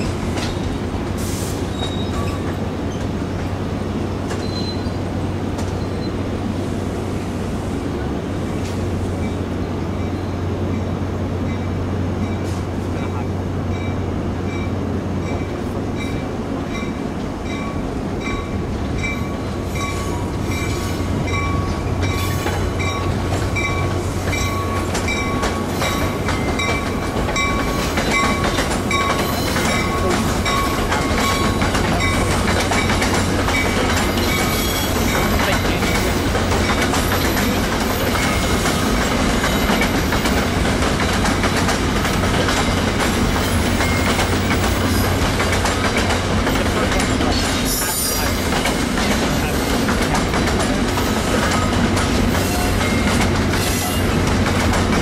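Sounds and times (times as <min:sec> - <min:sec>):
train cars rumbling and clattering: 0:00.0 - 0:55.0
locomotive bell ringing: 0:13.6 - 0:39.8, 0:51.0 - 0:54.2.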